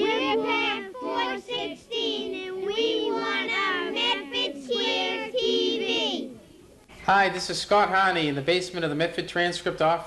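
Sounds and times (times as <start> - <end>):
boys singing together: 0.0 - 6.4.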